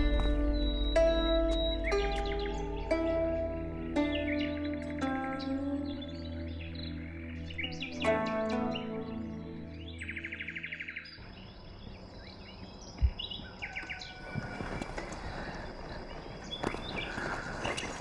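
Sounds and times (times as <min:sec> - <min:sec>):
music: 0:00.0 - 0:13.2
birds chirping: 0:00.0 - 0:18.0.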